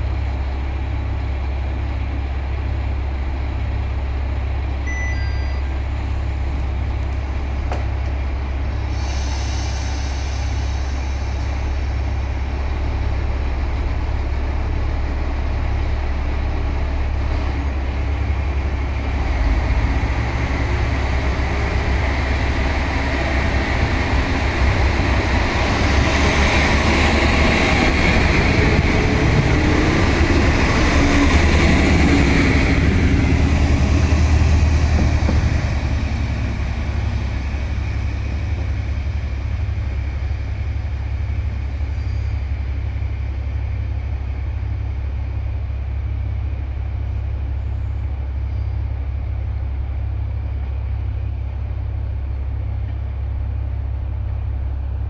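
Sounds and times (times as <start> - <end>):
diesel railcar engine rumbling: 0.0 - 55.0
train wheel noise: 0.0 - 55.0
short high beeps: 4.9 - 5.8
air hissing: 8.7 - 12.1.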